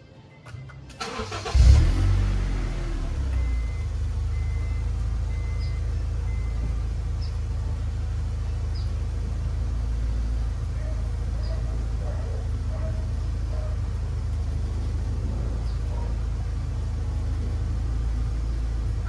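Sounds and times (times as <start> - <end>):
starter cranking engine: 0.9 - 2.0
car engine idling: 0.9 - 19.0.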